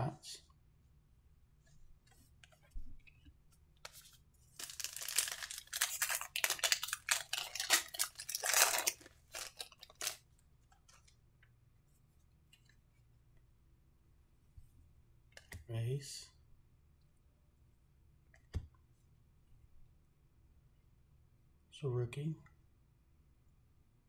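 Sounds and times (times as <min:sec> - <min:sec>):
wrapper tearing and crinkling: 0:04.6 - 0:10.2.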